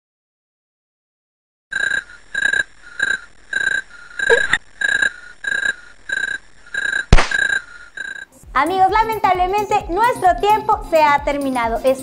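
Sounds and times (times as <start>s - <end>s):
rhythmic night creature chirping: 1.7s - 8.4s.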